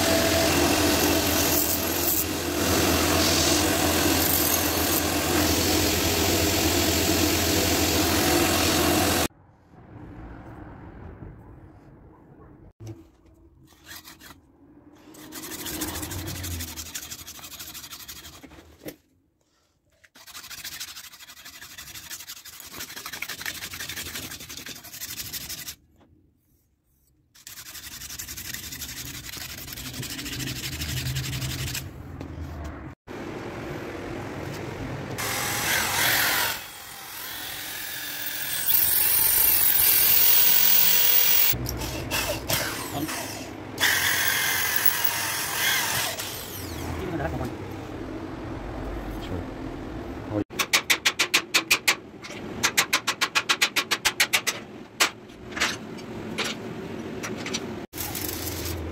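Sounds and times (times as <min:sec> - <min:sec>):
steel grinding on grinding wheel: 0:00.0 - 0:09.3, 0:37.4 - 0:42.1, 0:42.8 - 0:46.8
rotary tool cutting metal: 0:35.2 - 0:46.9.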